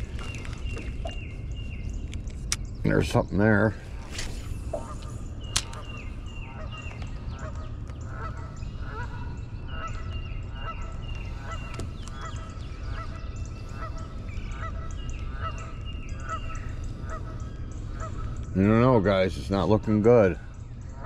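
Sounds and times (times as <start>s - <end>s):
steady low hum: 0.0s - 21.0s
geese honking: 4.7s - 21.0s.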